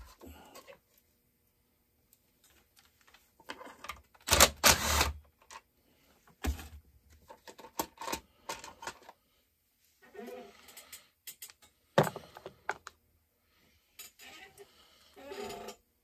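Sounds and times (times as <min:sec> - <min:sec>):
parts clattering on workbench: 0:11.3 - 0:12.9.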